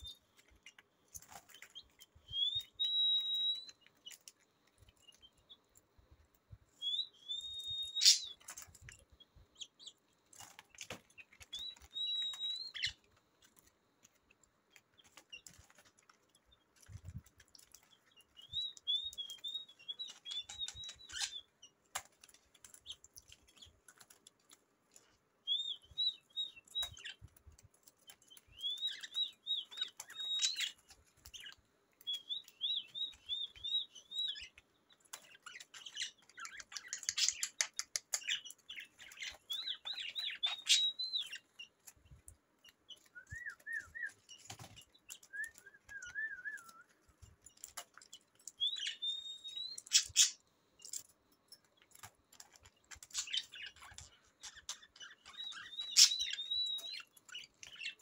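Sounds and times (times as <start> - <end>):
budgerigars chirping: 7.9 - 8.4, 35.3 - 41.7, 48.7 - 50.4, 53.0 - 57.1.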